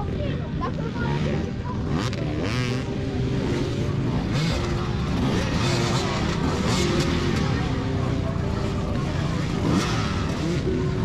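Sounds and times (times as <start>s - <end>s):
dirt bike engines revving: 0.0s - 11.0s.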